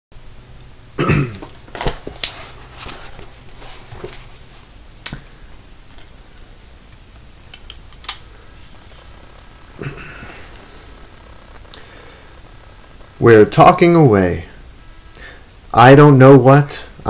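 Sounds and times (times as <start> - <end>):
sharp clicks: 6.9 - 8.3.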